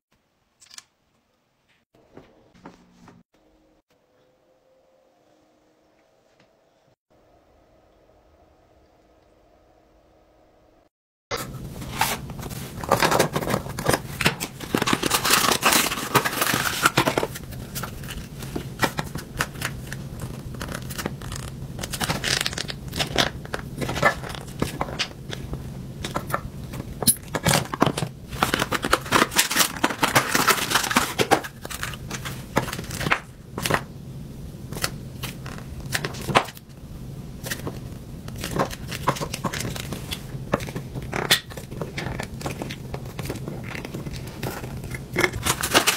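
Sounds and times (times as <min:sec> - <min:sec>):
low steady hum: 0:02.0 - 0:45.9
plastic tube crinkling: 0:11.8 - 0:33.8.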